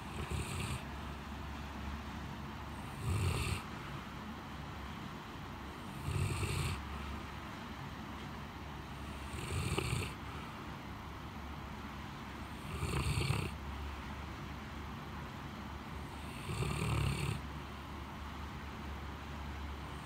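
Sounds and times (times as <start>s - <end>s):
dog snoring: 0.0s - 0.9s, 2.7s - 3.8s, 5.8s - 7.0s, 8.9s - 10.3s, 12.4s - 13.6s, 16.0s - 17.5s
steady background hum: 0.0s - 20.0s.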